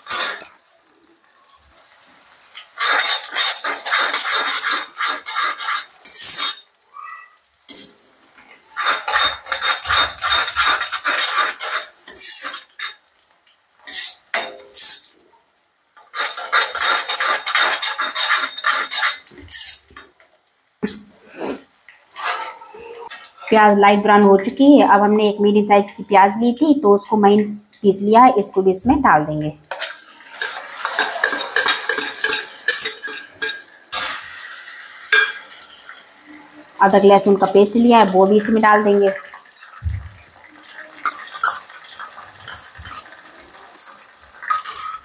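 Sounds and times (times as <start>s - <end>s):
spoon scraping a wok: 0.0s - 0.7s, 1.8s - 6.7s, 8.8s - 13.0s, 13.8s - 15.1s, 16.0s - 20.0s, 22.1s - 23.5s, 29.7s - 35.8s, 40.6s - 45.0s.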